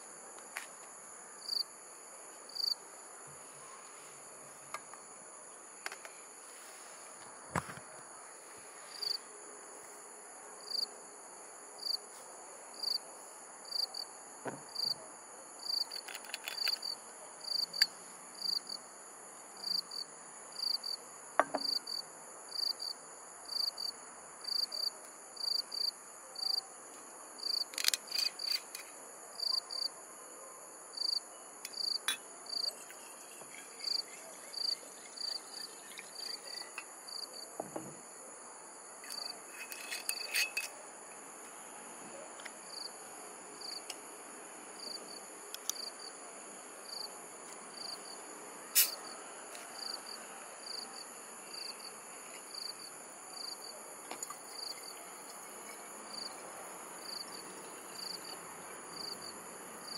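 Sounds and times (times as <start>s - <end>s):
crickets chirping: 0.0s - 59.9s
high-pitched insect trill: 31.0s - 37.4s, 39.0s - 40.8s, 50.6s - 59.9s.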